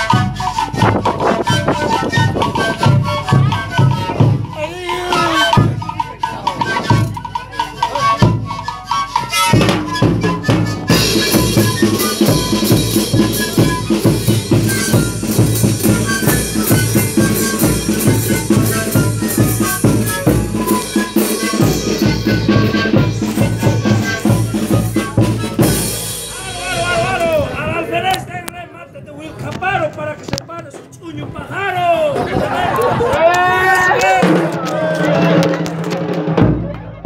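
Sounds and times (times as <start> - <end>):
snare drums: 0.0 - 27.4, 33.9 - 37.0
panpipe band playing: 0.0 - 28.1
bass drum: 9.6 - 27.0.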